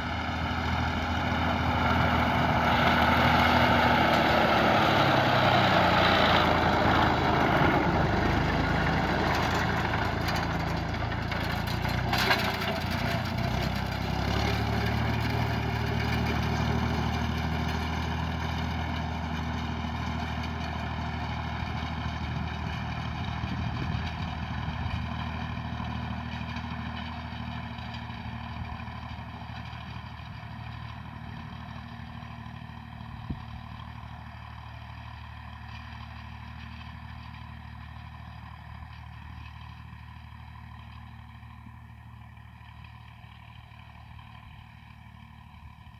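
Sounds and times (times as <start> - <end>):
tractor engine driving past: 0.0 - 45.9.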